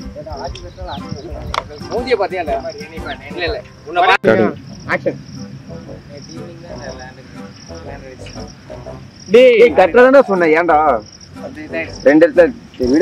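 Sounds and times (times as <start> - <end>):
crickets chirping: 0.0 - 13.0.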